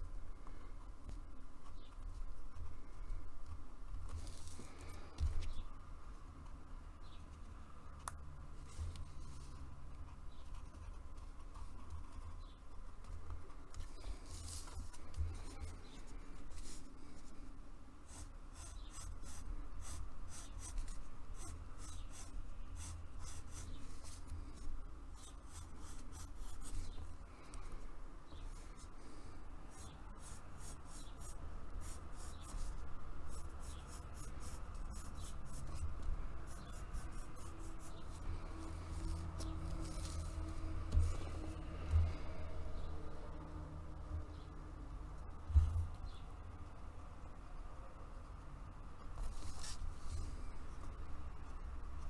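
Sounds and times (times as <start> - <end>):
steady low hum: 0.0 - 52.0
pencil scratching on paper: 18.0 - 27.0, 29.7 - 41.4.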